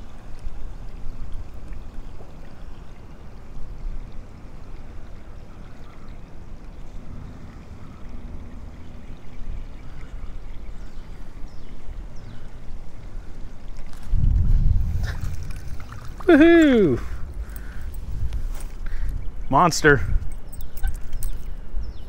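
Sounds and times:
creek water rushing: 0.0s - 21.8s.

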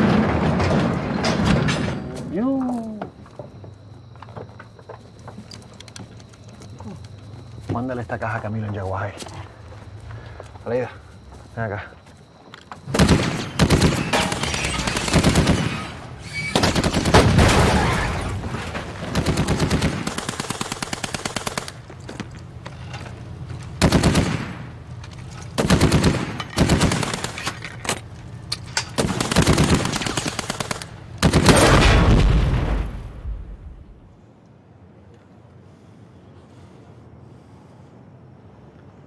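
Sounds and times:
automatic weapon fire bursts: 12.9s - 16.0s, 19.1s - 21.8s, 23.8s - 24.6s, 25.6s - 27.4s, 29.0s - 32.0s.

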